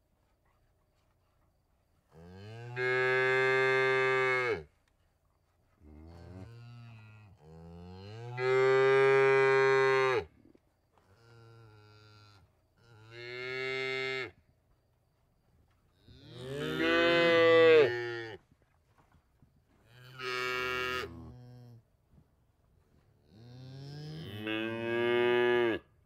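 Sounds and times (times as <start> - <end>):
cows mooing: 16.3 - 18.2.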